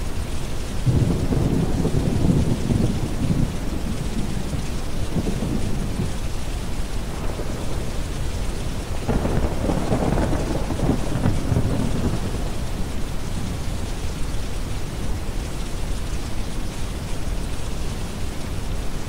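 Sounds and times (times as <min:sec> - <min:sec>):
steady rain: 0:00.0 - 0:19.0
rolling thunder: 0:00.8 - 0:13.6.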